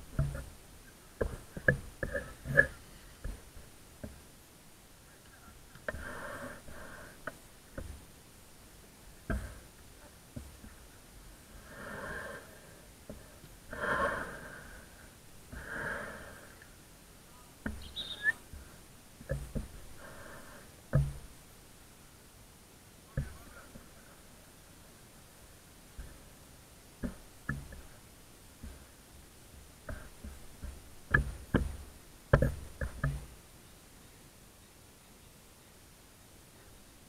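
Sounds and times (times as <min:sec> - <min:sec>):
sharp knocks: 0:20.9 - 0:21.3, 0:29.9 - 0:33.3.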